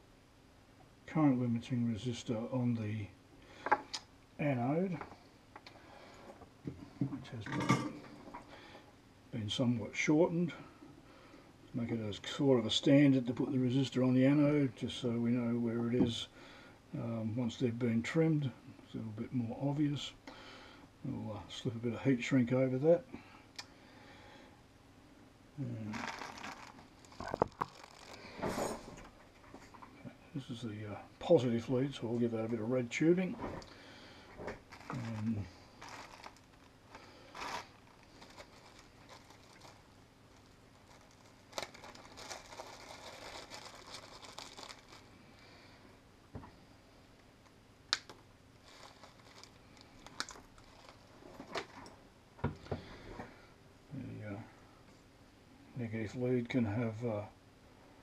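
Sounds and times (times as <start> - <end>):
rustling and crinkling of parts: 25.6 - 30.0, 31.5 - 45.4, 47.4 - 53.4.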